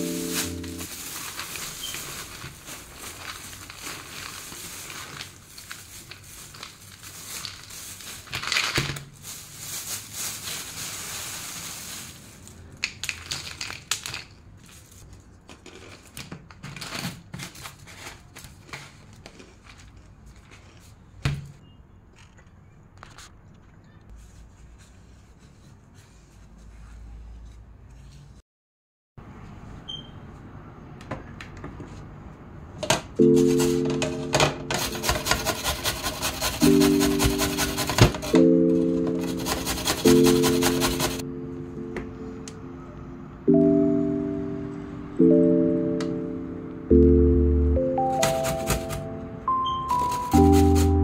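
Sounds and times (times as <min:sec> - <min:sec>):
plastic bag crinkling: 0:00.0 - 0:20.9
snack sticks rattling against a jar: 0:04.8 - 0:09.0, 0:12.6 - 0:14.8, 0:34.7 - 0:38.4, 0:39.2 - 0:41.2.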